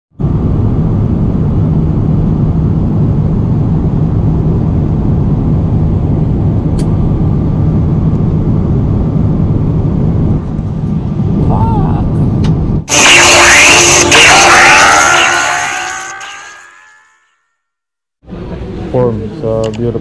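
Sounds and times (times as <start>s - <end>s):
airliner engine and airflow rumble: 0.2s - 12.9s.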